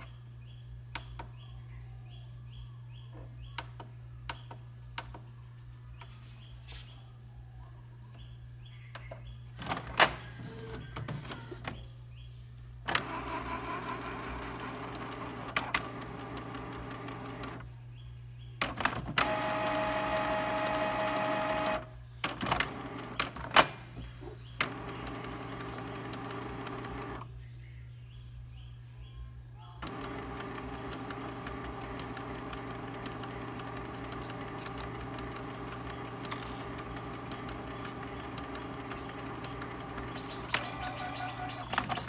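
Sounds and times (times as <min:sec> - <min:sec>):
printer motors whirring: 0:09.6 - 0:11.9, 0:12.9 - 0:17.7, 0:18.6 - 0:27.3, 0:29.8 - 0:42.0
printer mechanism clicks and clunks: 0:18.6 - 0:23.8, 0:29.8 - 0:42.0.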